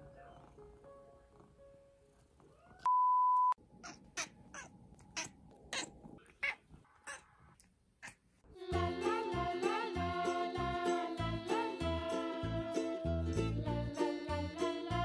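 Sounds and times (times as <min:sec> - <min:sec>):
cat crying: 0:03.7 - 0:07.3.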